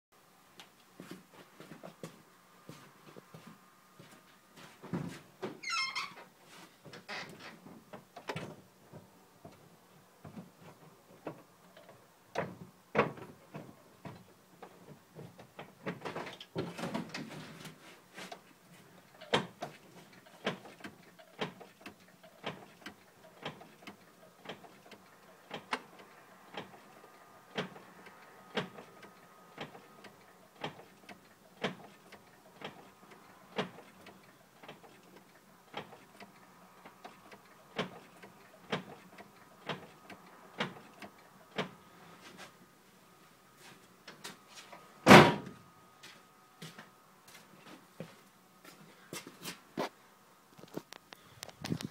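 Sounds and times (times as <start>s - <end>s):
clutch mechanism clicks and knocks: 19.2s - 26.9s, 27.5s - 27.8s, 28.5s - 41.8s.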